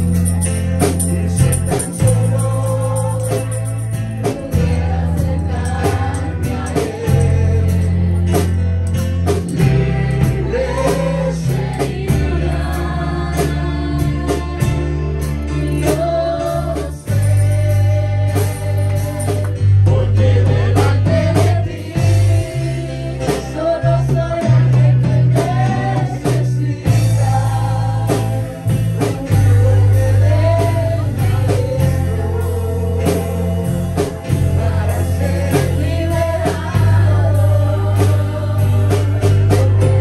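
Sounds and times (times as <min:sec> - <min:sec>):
bass guitar: 0:00.0 - 0:40.0
drum kit: 0:00.0 - 0:40.0
electric guitar: 0:00.0 - 0:40.0
women singing into microphones: 0:04.2 - 0:07.6, 0:09.6 - 0:15.0, 0:15.6 - 0:32.5, 0:34.2 - 0:40.0.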